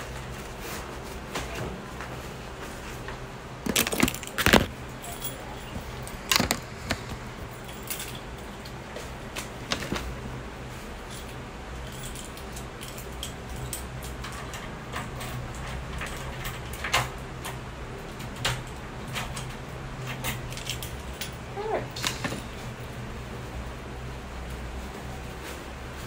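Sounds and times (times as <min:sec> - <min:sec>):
steady low hum: 0:00.0 - 0:26.0
handling knocks and clicks: 0:03.0 - 0:10.2
keys jangling: 0:03.7 - 0:08.7, 0:11.1 - 0:16.8, 0:20.1 - 0:22.4.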